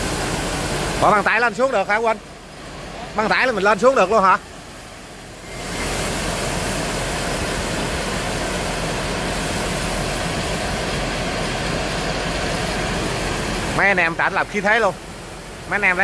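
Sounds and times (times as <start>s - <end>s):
conveyor drive humming: 0.0s - 16.0s
rice pouring off conveyor: 4.5s - 15.8s.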